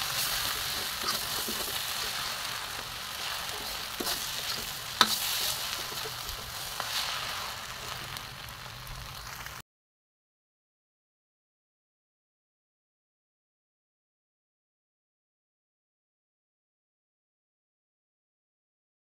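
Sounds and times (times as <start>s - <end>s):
noodles sizzling in a wok: 0.0s - 9.6s.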